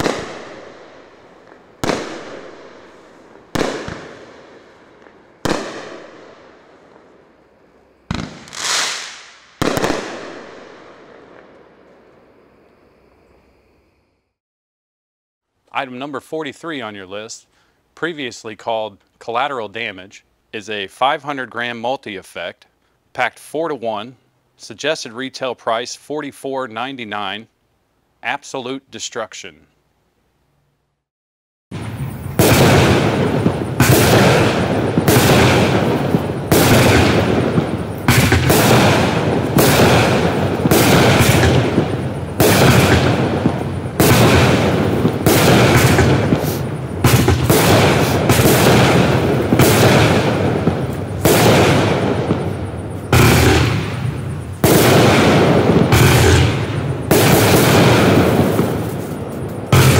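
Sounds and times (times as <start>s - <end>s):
fireworks cake firing: 0.0s - 7.1s, 7.8s - 12.0s, 31.7s - 59.9s.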